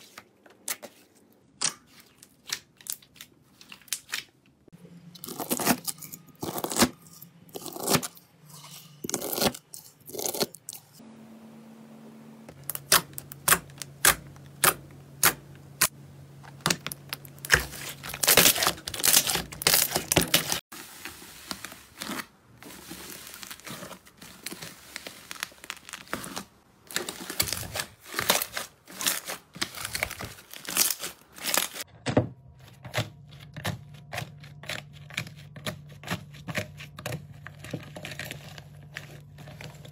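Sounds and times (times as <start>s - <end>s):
crisp slime layers peeling apart: 16.8s - 20.6s, 24.4s - 31.8s.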